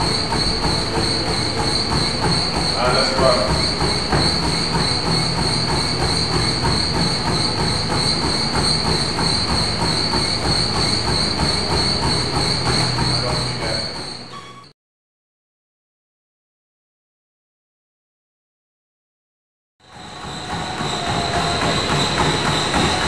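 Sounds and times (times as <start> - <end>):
footfalls on treadmill belt: 0.0 - 14.6, 20.0 - 23.0
treadmill whine: 0.0 - 14.7, 19.8 - 23.0.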